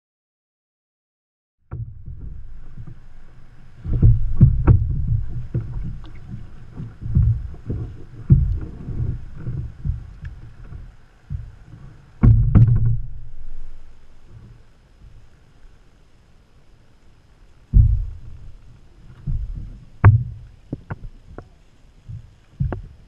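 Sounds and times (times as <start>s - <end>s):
low rumble of water on hull: 1.6s - 23.0s
thuds and knocks on plastic hull: 1.7s - 11.6s, 12.2s - 15.2s, 17.7s - 18.6s, 19.2s - 21.5s, 22.1s - 23.0s.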